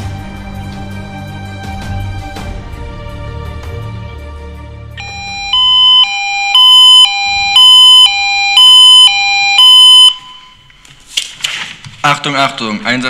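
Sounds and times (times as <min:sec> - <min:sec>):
background music: 0:00.0 - 0:06.0
alarm pager two-tone alert: 0:05.0 - 0:10.7.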